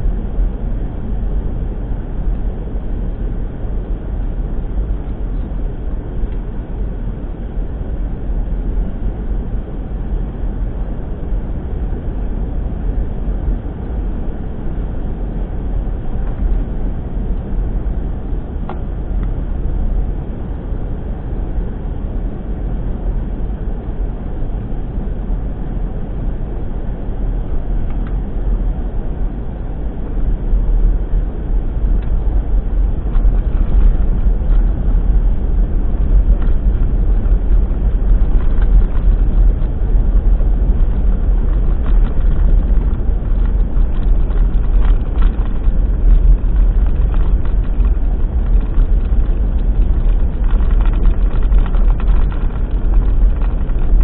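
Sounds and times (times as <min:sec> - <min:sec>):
engine and tyres rumbling: 0:00.0 - 0:54.0
gravel ticks: 0:31.8 - 0:54.0.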